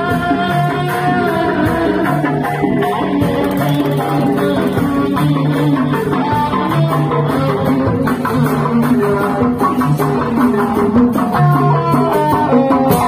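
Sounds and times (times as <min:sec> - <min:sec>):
plucked-string melody: 0:01.0 - 0:08.4
repeating bass note: 0:02.6 - 0:05.6.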